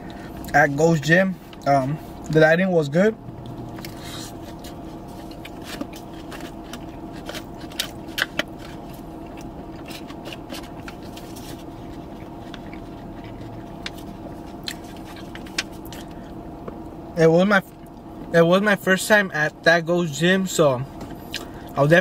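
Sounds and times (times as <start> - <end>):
steady low hum: 0.0 - 22.0
chewing and mouth noises: 3.4 - 17.0, 21.0 - 21.8.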